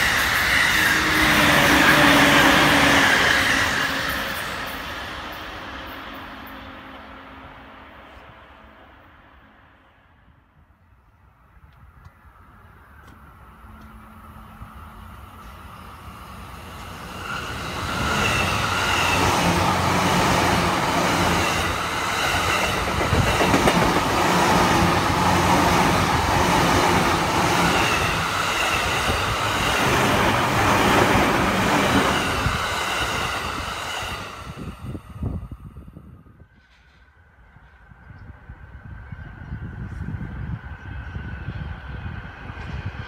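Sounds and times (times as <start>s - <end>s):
electric train whine: 0.0s - 43.0s
train wheels clattering on rails: 17.2s - 34.1s.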